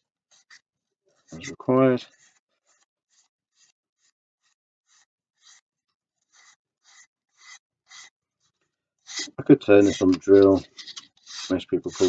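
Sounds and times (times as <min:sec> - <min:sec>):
sandpaper scratching wood: 0:01.2 - 0:05.6, 0:06.3 - 0:08.2, 0:09.1 - 0:12.0.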